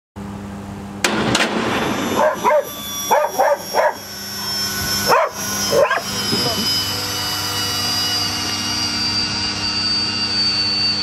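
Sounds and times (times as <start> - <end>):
steady low hum: 0.2 - 11.0
sharp bang: 1.0 - 3.0
dog barking: 2.2 - 4.0, 5.1 - 6.1.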